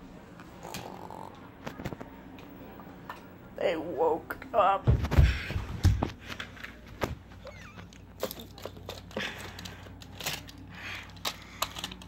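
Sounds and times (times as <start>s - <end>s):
plastic toy trains clicking: 8.2s - 12.0s.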